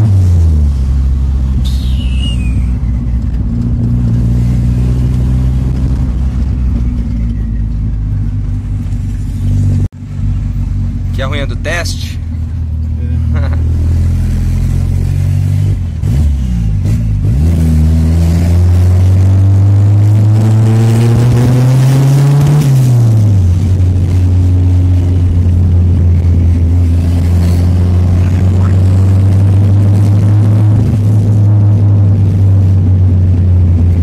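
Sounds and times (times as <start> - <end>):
turbocharged car engine revving: 0.0 - 12.1, 12.8 - 34.0.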